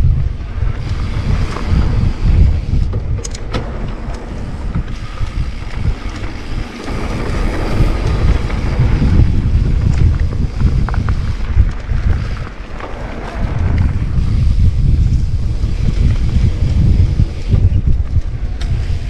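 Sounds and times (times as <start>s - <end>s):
wind rumble on microphone: 0.0s - 19.0s
sharp clicks: 3.2s - 5.4s.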